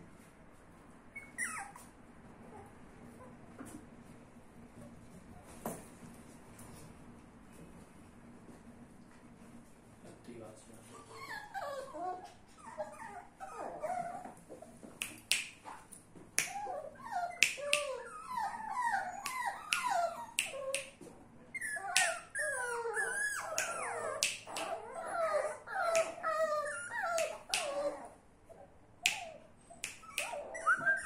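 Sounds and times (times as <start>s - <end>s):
puppies whimpering and whining: 1.1s - 3.4s, 10.8s - 14.8s, 16.4s - 31.0s.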